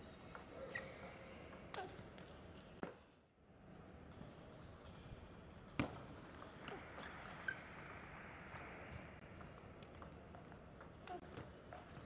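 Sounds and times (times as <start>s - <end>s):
sneaker squeaks on floor: 0.6s - 1.1s, 7.0s - 7.6s.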